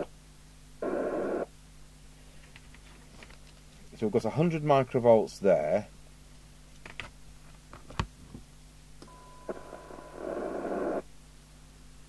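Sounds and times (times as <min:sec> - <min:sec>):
radio hiss: 0:00.8 - 0:01.5, 0:09.5 - 0:11.1
radio test tone: 0:00.8 - 0:01.5, 0:09.1 - 0:11.0.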